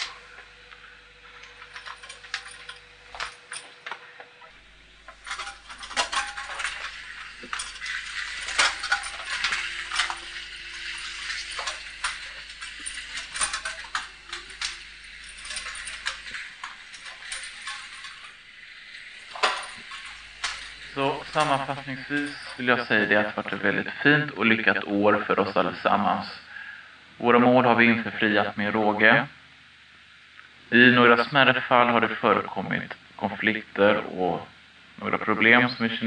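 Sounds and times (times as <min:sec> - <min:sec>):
wheelchair rolling on hard floor: 0:05.0 - 0:23.2.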